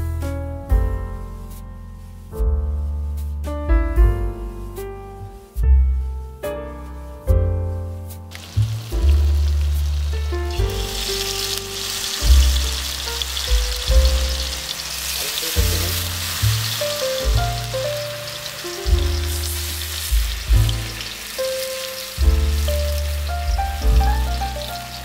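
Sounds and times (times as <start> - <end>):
background music with deep bass: 0.0 - 25.0
vegetables sizzling in oil: 8.3 - 25.0.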